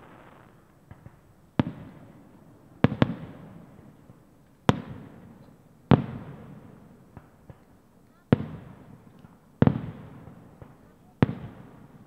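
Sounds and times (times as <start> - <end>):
fireworks bangs echoing: 0.0 - 2.2, 2.8 - 5.3, 9.6 - 11.8.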